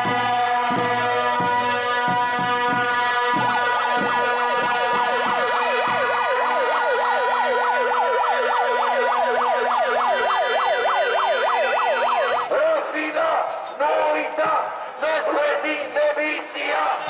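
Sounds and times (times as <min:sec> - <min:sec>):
steady horn tone: 0:00.0 - 0:08.2
drum beats: 0:00.0 - 0:13.0
siren wailing yelp: 0:00.0 - 0:14.0.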